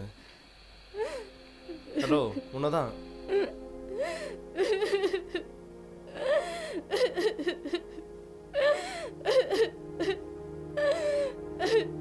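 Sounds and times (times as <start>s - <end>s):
background music score: 0.0s - 12.0s
woman sobbing and whimpering: 1.0s - 2.0s, 3.3s - 12.0s.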